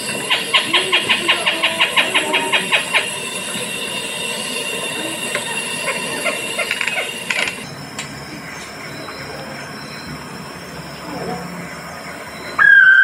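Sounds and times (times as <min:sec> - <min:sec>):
recorded bird call: 0:05.4 - 0:13.0.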